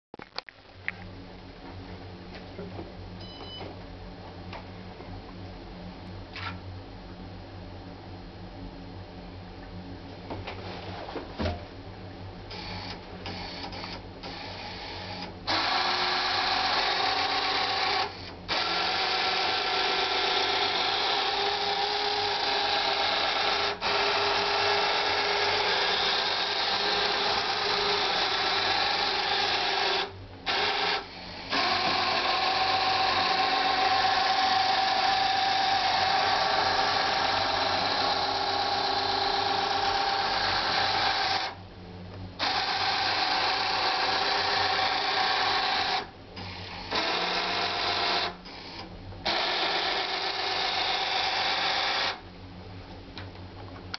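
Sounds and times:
electric motors whirring through gears: 0:12.5 - 0:41.6, 0:42.4 - 0:52.2.

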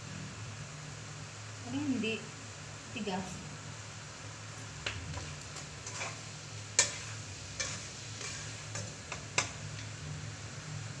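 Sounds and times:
frying sizzle: 0:00.0 - 0:11.0
spatula scraping wok: 0:05.1 - 0:10.1
spatula clacking against pan: 0:05.6 - 0:09.9.

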